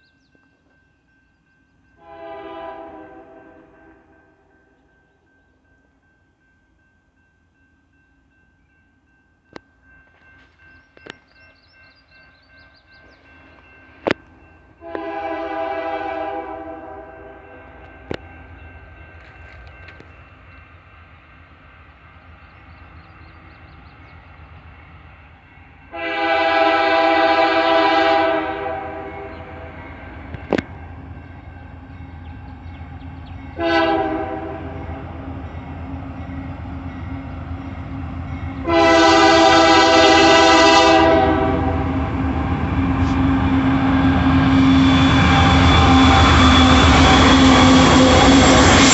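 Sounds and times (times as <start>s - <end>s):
locomotive air horn blasts: 2.0s - 4.1s, 14.8s - 17.9s, 25.9s - 29.7s, 33.6s - 35.0s, 38.6s - 42.0s.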